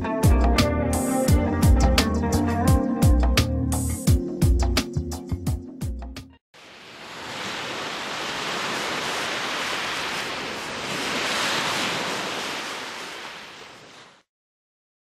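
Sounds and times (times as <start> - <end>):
waves washing onto sandy shore: 6.6 - 14.3.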